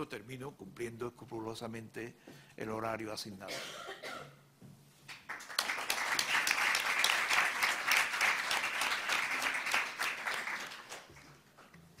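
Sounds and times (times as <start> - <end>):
audience clapping: 5.1 - 11.5.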